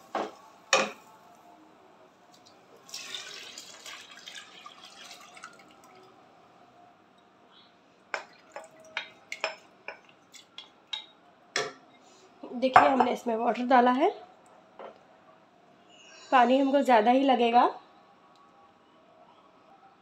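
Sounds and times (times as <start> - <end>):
water pouring into a pot: 2.8 - 6.1.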